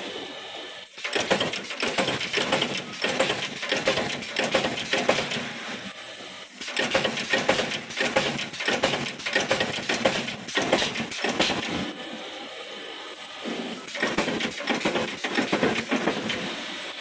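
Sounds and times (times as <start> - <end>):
punch press clanking: 1.0 - 5.6, 6.6 - 11.8, 13.9 - 16.5.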